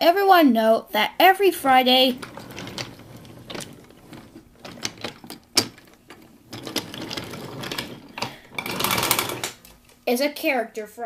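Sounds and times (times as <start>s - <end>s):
small clicks and rattles: 1.6s - 10.0s.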